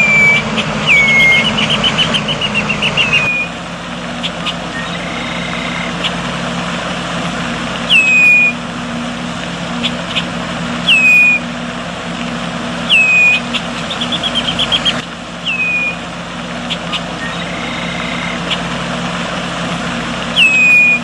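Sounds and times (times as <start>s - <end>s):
blackbird whistled calls: 0.0s - 3.6s, 4.2s - 6.2s, 7.9s - 8.6s, 9.8s - 11.5s, 12.9s - 16.0s, 16.6s - 18.7s, 20.3s - 21.0s
bird short chips: 20.3s - 21.0s.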